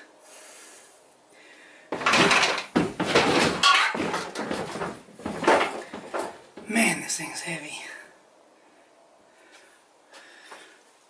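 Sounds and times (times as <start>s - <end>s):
metal scraping and knocking: 2.0s - 6.7s.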